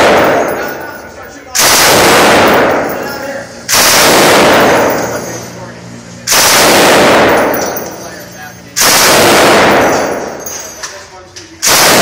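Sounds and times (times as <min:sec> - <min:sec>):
machine gun bursts: 0:00.0 - 0:01.0, 0:01.6 - 0:05.3, 0:06.3 - 0:08.1, 0:08.8 - 0:10.6, 0:11.6 - 0:12.0
echo of indoor range: 0:00.0 - 0:12.0.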